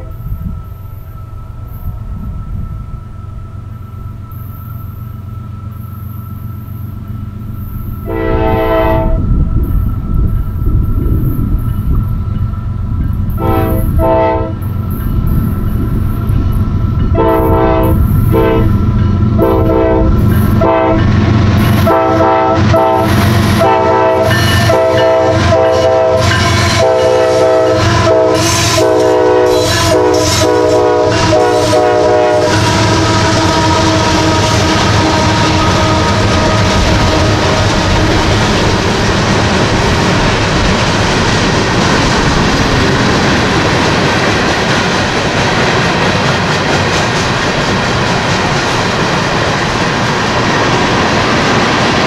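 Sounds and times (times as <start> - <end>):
locomotive air horn blasts: 0.0 - 0.3, 8.0 - 9.3, 13.4 - 14.6, 17.2 - 18.8, 19.4 - 37.6
diesel locomotive rumbling: 0.0 - 52.0.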